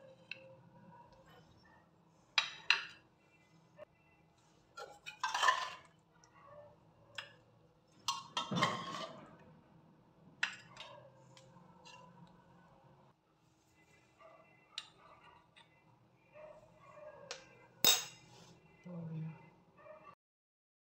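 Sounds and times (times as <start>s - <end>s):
bowls clinking on a plate: 17.3s - 18.4s.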